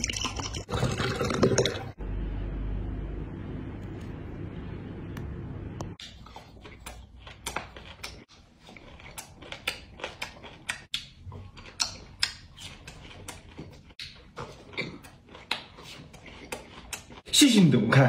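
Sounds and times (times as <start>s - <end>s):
low steady noise: 2.0s - 6.0s
chewing crunchy food: 6.0s - 17.4s.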